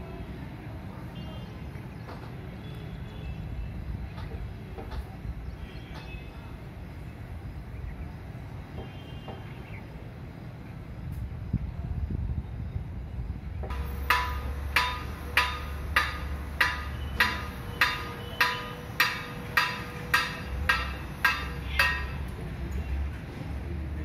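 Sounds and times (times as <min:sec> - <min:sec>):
hammer striking metal: 0:13.7 - 0:22.4.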